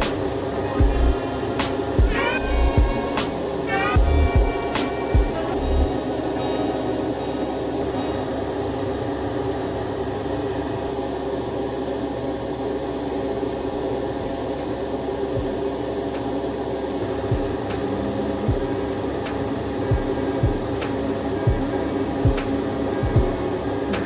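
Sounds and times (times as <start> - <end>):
airbrush spraying hiss: 0.0 - 10.0, 10.9 - 22.7
extraction fan hum: 0.0 - 24.0.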